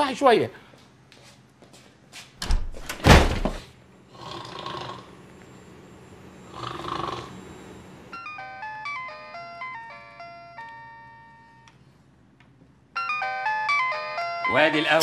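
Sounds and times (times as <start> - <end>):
door shutting with thumps: 2.4 - 3.7
woman snoring: 4.1 - 5.1, 6.4 - 7.6.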